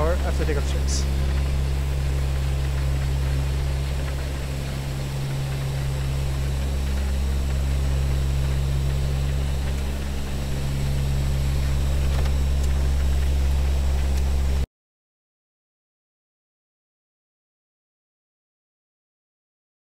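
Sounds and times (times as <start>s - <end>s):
turboprop engines humming: 0.0s - 14.7s.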